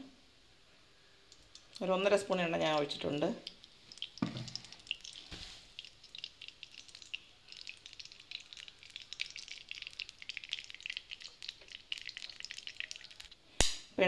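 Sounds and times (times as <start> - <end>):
oil crackling in pan: 1.2 - 13.8.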